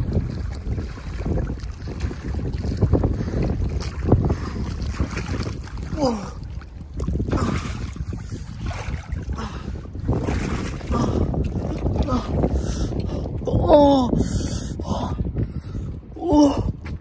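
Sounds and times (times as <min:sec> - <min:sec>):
water splashing and sloshing: 0:00.0 - 0:14.1
wind rumbling on microphone: 0:00.0 - 0:17.0.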